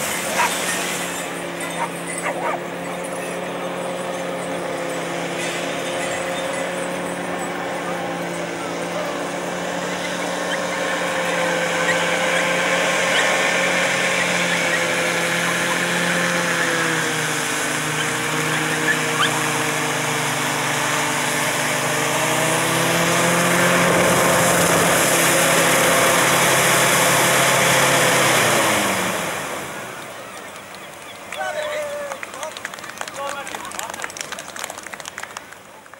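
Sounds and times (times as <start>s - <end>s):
hovercraft engine drone: 0.0s - 35.9s.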